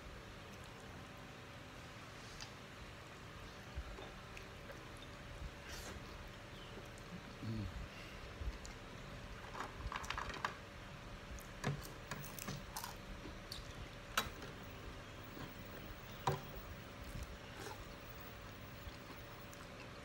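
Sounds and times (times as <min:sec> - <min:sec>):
chewing and mouth noises: 0:15.3 - 0:20.0.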